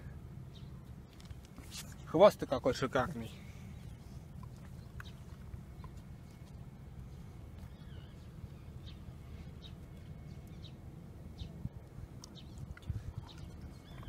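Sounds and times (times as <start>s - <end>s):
wind on microphone: 12.4s - 14.0s.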